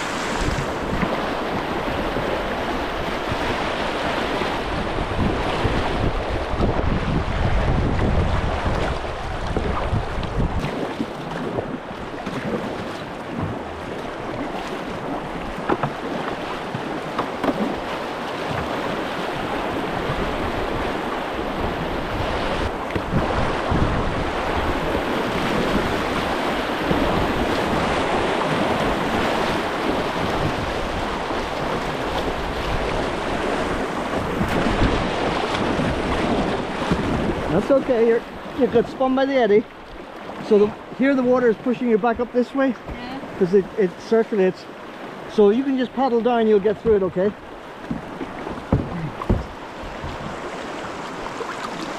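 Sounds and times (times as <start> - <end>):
river rapids rushing: 0.0 - 6.6
wind buffeting microphone: 0.0 - 43.8, 45.1 - 51.9
paddle dipping through water: 0.0 - 51.9.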